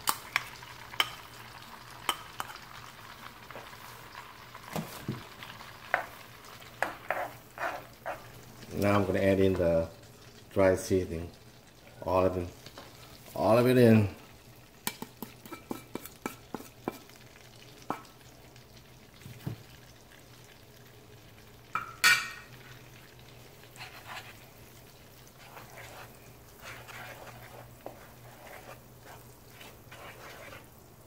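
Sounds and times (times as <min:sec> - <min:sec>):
wooden spatula scraping a pan: 0:03.5 - 0:09.6, 0:23.6 - 0:30.8.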